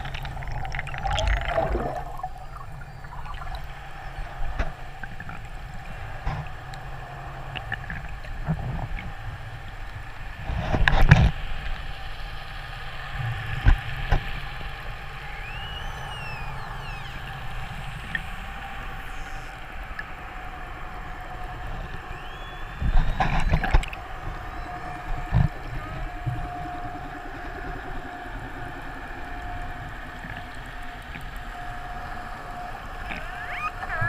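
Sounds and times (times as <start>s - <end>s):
underwater hum: 0.0s - 34.0s
orca whistles: 15.3s - 17.2s.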